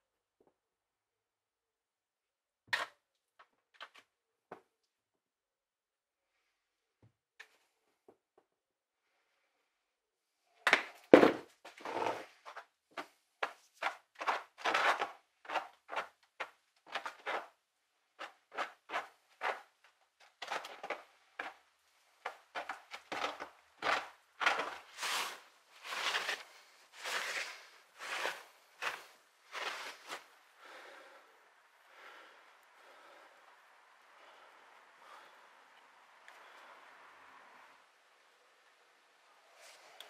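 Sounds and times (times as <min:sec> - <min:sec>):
plastic bucket set down: 0:11.1 - 0:11.5
wooden stick scraping plastic tub: 0:11.2 - 0:17.6, 0:18.2 - 0:21.6, 0:22.2 - 0:30.3.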